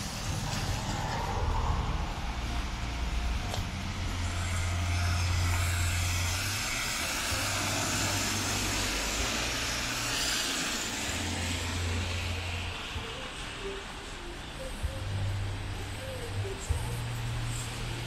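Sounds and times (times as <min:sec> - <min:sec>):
low rumble: 0:00.0 - 0:13.6
tyres hissing on wet asphalt: 0:00.0 - 0:18.0.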